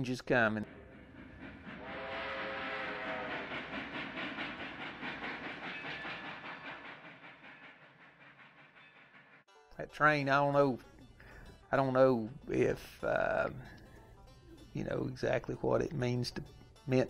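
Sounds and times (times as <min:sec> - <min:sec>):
steam locomotive chuffing: 0:00.5 - 0:09.5
steam whistle: 0:00.7 - 0:04.6.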